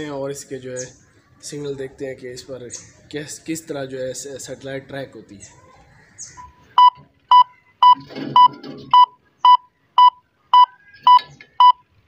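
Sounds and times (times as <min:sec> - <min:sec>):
short electronic beeps: 0:06.4 - 0:11.9.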